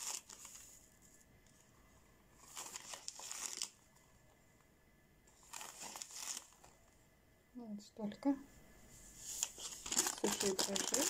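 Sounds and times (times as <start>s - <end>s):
foil sachet crinkling: 0.0s - 0.6s, 2.4s - 3.8s, 5.4s - 6.7s, 9.4s - 11.0s.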